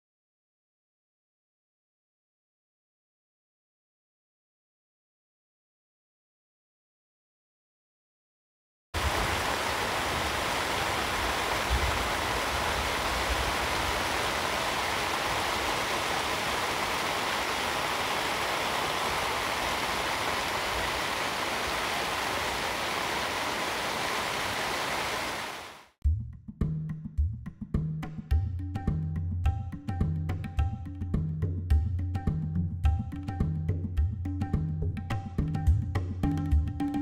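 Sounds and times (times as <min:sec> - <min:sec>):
rain pattering on a tent: 0:09.0 - 0:25.9.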